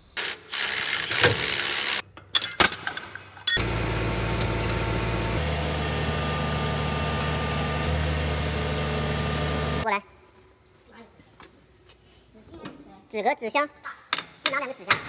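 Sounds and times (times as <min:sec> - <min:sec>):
wheel loader diesel engine running: 0:03.6 - 0:09.8.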